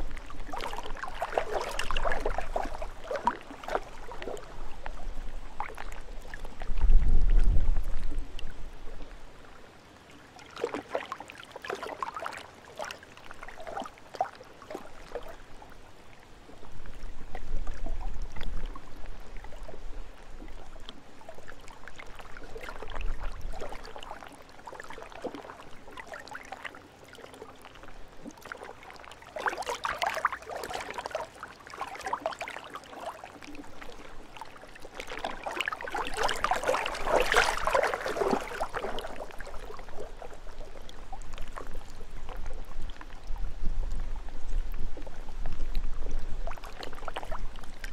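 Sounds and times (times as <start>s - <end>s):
waves lapping at shore: 0.0s - 6.8s, 9.0s - 17.3s, 20.6s - 43.3s
wind rumbling on microphone: 0.0s - 9.6s, 16.5s - 21.0s, 36.0s - 47.9s.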